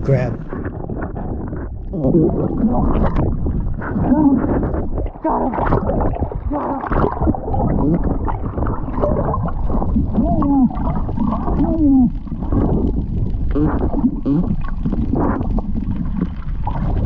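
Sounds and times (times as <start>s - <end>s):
water gurgling and churning: 0.0s - 11.8s.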